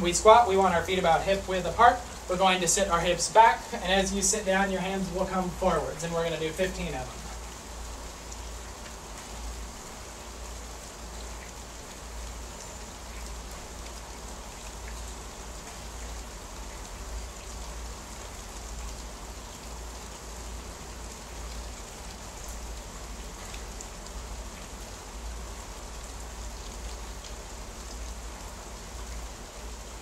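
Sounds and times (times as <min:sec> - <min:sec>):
steady rain hissing: 0:00.0 - 0:30.0.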